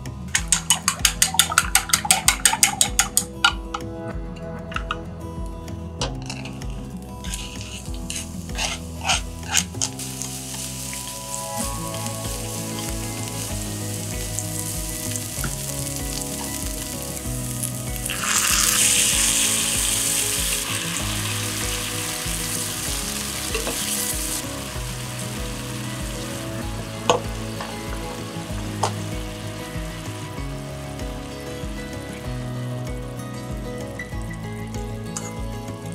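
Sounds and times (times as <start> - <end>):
slices sizzling in oil: 7.3 - 31.3
liquid hissing in hot pan: 7.4 - 31.0.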